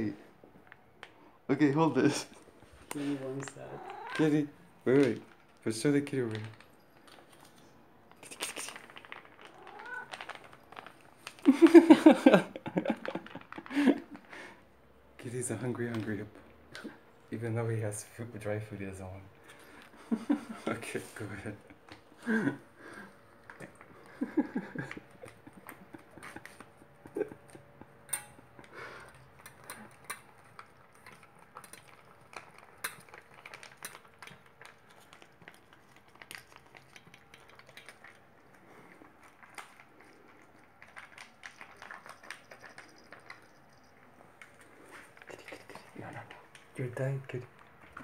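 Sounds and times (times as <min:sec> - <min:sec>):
cat chewing and lapping food: 0:02.2 - 0:17.4, 0:19.4 - 0:48.0
plastic pouch crinkling: 0:08.2 - 0:11.7.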